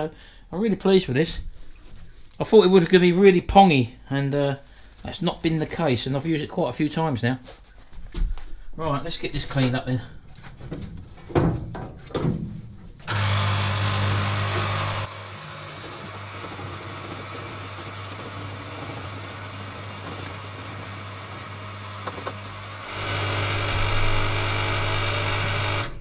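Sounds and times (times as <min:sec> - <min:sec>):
electric pump humming: 0:13.0 - 0:26.0.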